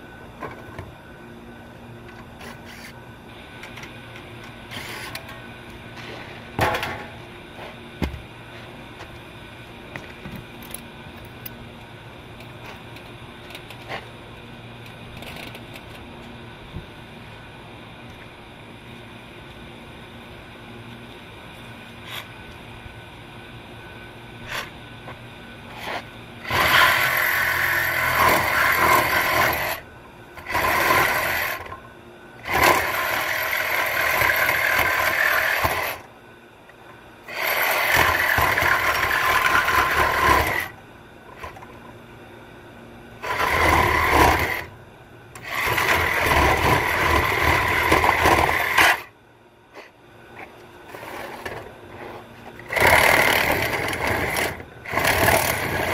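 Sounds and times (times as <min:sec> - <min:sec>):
reciprocating saw cutting metal: 0:25.7 - 0:29.8, 0:37.3 - 0:40.7.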